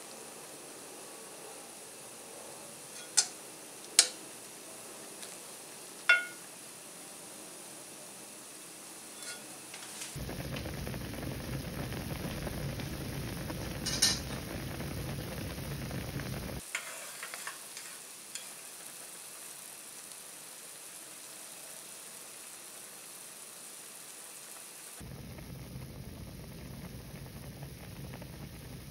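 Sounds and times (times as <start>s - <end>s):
broth boiling and bubbling: 10.1s - 28.9s.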